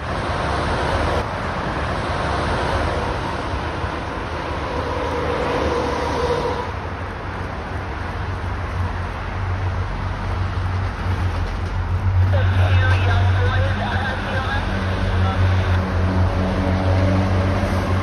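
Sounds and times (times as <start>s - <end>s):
heavy truck passing: 0.0s - 18.0s
highway traffic: 0.0s - 18.0s
train rumble: 0.0s - 18.0s.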